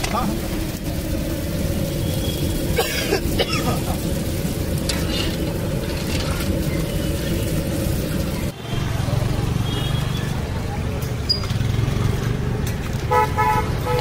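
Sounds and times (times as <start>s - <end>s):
food sizzling in hot oil: 0.0s - 12.9s
street noise: 0.0s - 14.0s
low rumble: 0.3s - 9.5s.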